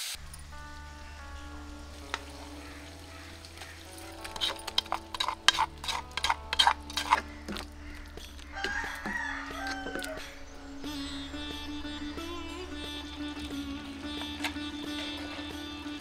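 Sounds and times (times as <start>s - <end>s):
spatula scraping a clay bowl and wok: 1.8s - 16.0s
rooster crowing: 8.4s - 10.5s.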